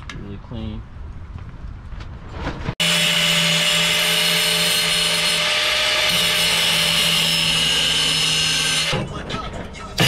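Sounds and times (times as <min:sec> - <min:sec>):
angle grinder cutting steel: 0:02.8 - 0:09.0.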